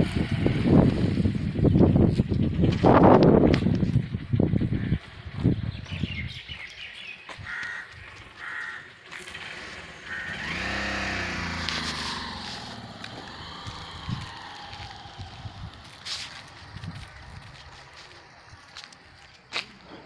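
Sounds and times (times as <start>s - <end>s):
wind rumbling on microphone: 0.0s - 8.4s, 10.4s - 19.3s
motor vehicle passing: 0.0s - 20.0s
short bird calls: 6.0s - 9.0s.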